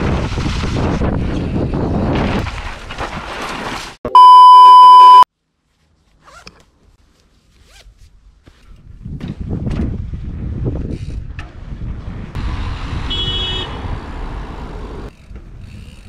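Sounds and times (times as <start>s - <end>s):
wind noise on microphone: 0.0s - 3.1s, 8.7s - 14.2s
electronic beep: 4.1s - 5.3s.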